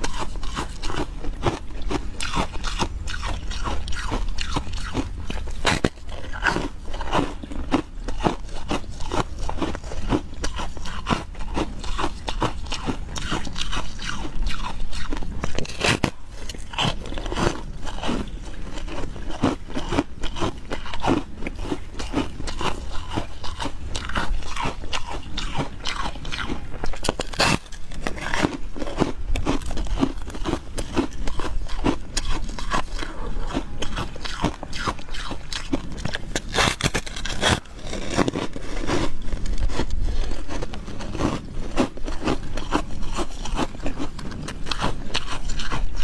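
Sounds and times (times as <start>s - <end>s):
ice crunching between teeth: 0.0s - 46.0s.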